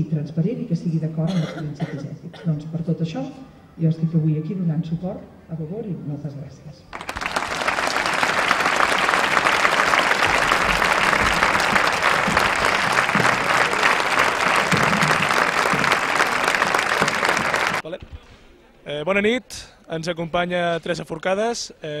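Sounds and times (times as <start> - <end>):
audience applauding: 6.9 - 17.8.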